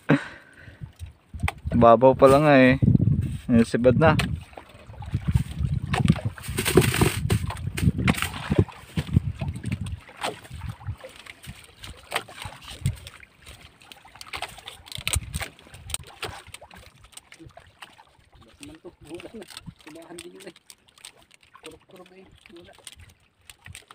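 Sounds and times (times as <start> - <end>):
fishing rig rustling: 4.3 - 23.9
knocks and thumps against boat hull: 5.2 - 10.6.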